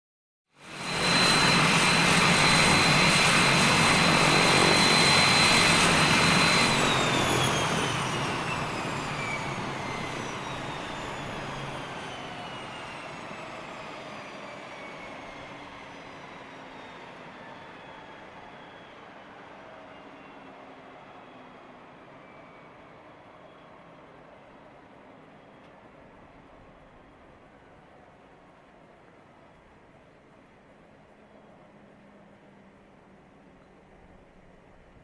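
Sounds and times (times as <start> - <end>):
low propeller drone: 0.6 - 23.7
turbine whine: 0.6 - 27.2.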